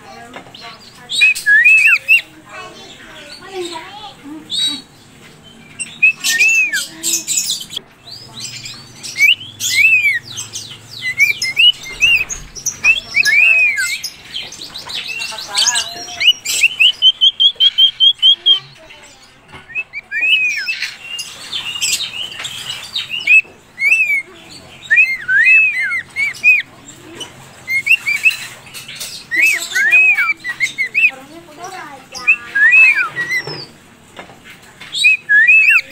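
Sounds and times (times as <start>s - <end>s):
harsh raspy bird calls: 0.0s - 35.9s
rapid repeated bird notes: 0.0s - 35.9s
cockatiels chirping: 0.1s - 35.9s.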